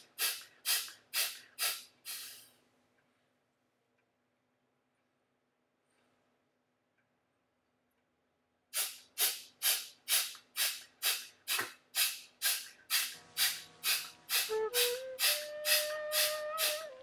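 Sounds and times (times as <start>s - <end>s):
sharp nasal breathing puffs: 0.0s - 2.6s, 8.7s - 16.9s
flute melody: 14.3s - 17.0s.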